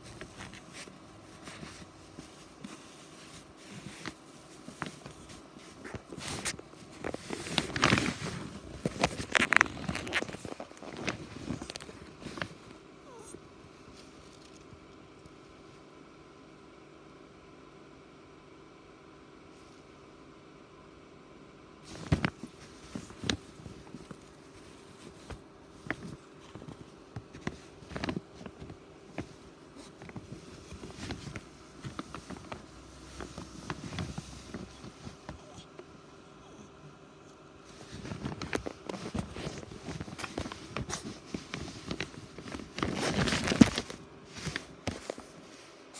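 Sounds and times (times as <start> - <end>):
rustling on fabric cat bed: 0.0 - 16.2, 21.8 - 36.0, 37.5 - 45.9.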